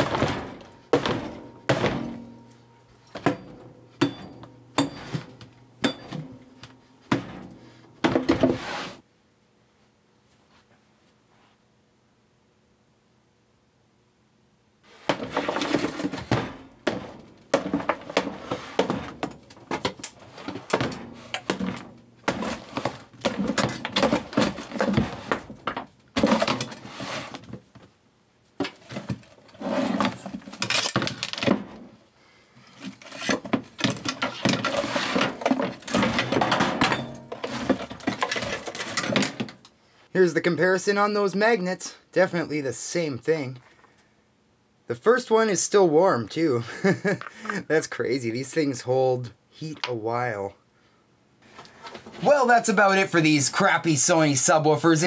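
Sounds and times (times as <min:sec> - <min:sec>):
wood board cracking and breaking: 0:00.0 - 0:02.3, 0:15.1 - 0:26.8.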